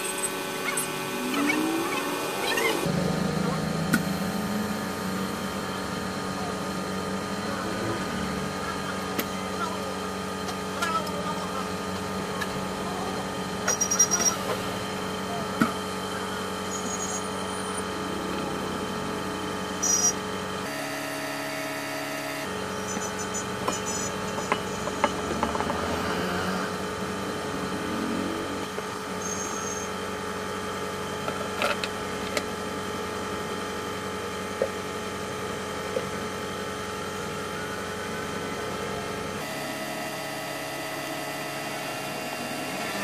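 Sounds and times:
handling clicks and knocks: 0:23.7 - 0:25.8.

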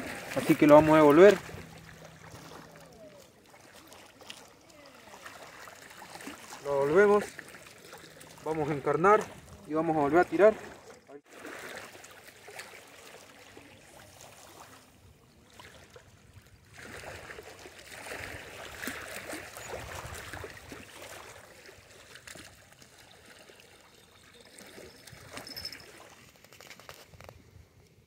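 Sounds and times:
water lapping at shore: 0:00.0 - 0:28.0.

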